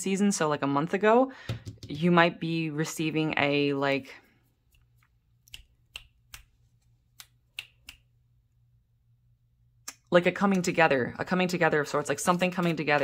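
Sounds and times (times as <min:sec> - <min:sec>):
fingers snapping: 0:05.4 - 0:06.5, 0:07.1 - 0:08.1.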